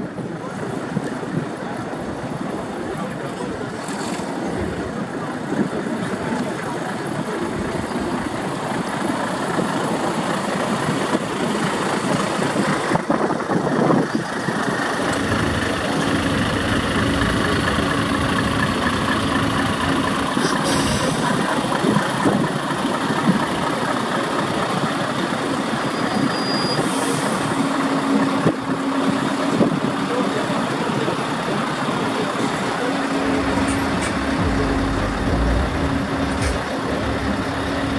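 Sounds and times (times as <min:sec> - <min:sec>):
truck diesel engines idling: 0:00.0 - 0:37.9
low even hum: 0:33.2 - 0:37.9.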